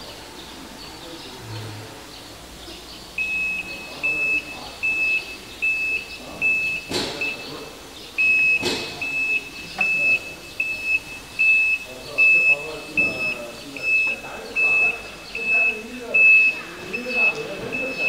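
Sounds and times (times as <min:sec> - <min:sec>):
high-pitched electronic beeps: 0:03.2 - 0:07.5, 0:08.2 - 0:18.0.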